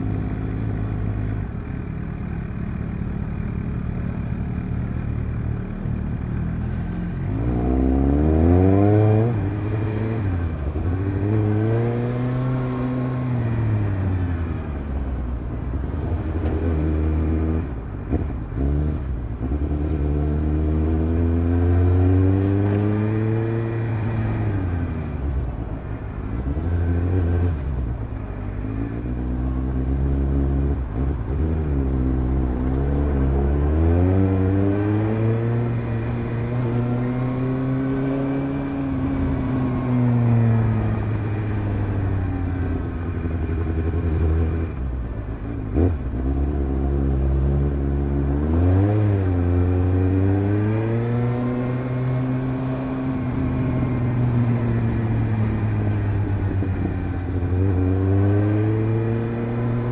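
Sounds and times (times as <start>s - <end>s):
motorcycle engine revving: 28.6s - 59.9s.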